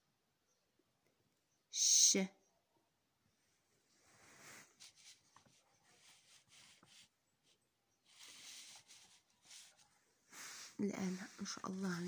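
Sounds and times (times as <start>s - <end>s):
paper rustling: 4.1s - 12.0s.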